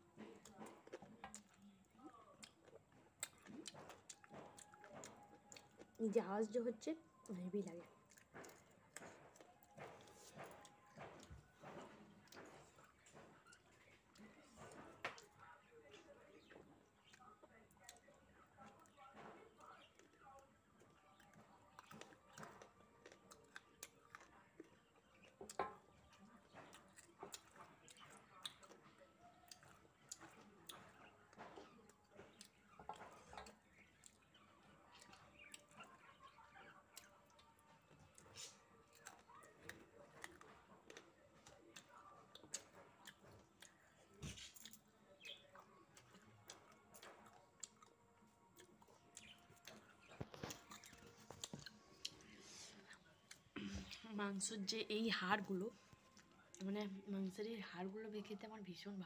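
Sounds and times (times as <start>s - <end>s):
chewing and sucking on bones: 20.8s - 35.8s, 36.9s - 53.6s.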